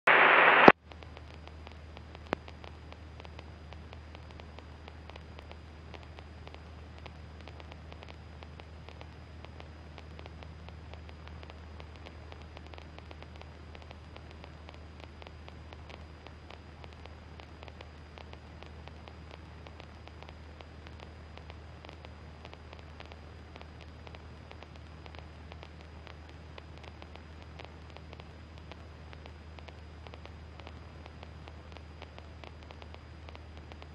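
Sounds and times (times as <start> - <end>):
loud burst of noise: 0.0 - 0.8
faint static hiss and crackling: 0.0 - 33.9
intercom low steady hum: 0.0 - 33.9.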